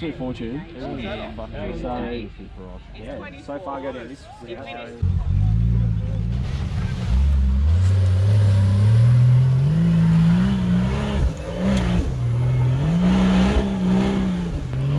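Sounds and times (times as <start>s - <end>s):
engine revving hard: 5.3s - 14.9s.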